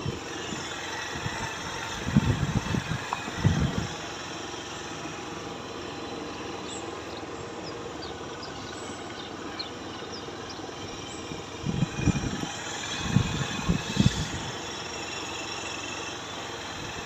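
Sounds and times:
street noise: 0.0s - 17.0s
vehicle engine: 0.0s - 17.0s
faint high bird chirps: 6.6s - 11.3s.

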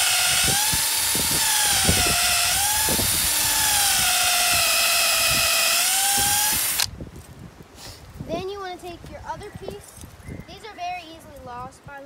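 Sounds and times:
cordless drill boring into wood: 0.0s - 6.9s.

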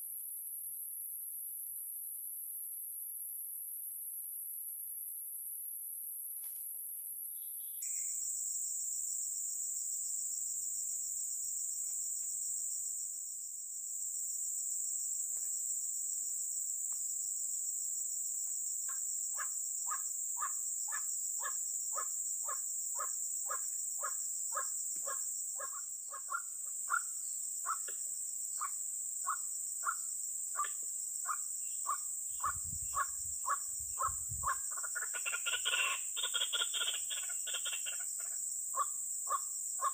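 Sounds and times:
insect chorus: 0.0s - 39.9s
bird repeated sharp calls: 19.4s - 28.0s, 30.6s - 39.9s.

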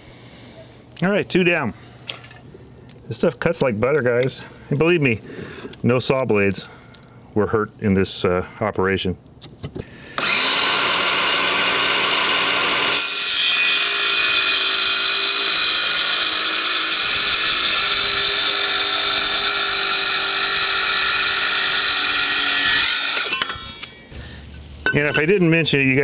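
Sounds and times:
circular saw cutting metal: 10.2s - 24.1s.

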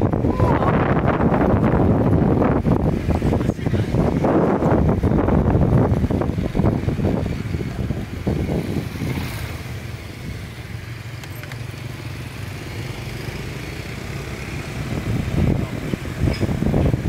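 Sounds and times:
wind buffeting microphone: 0.0s - 10.9s, 13.9s - 17.0s
motorbike engine hum: 0.0s - 17.0s.

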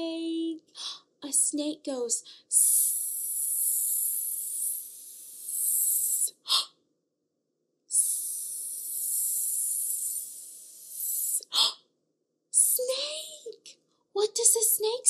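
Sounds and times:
woman hissing like a snake: 2.5s - 6.7s, 7.9s - 11.8s.

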